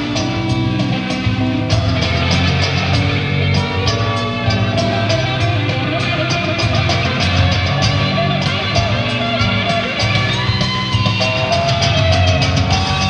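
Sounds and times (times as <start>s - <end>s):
drum and cymbal strikes: 0.0s - 13.0s
fusion band playing: 0.0s - 13.0s.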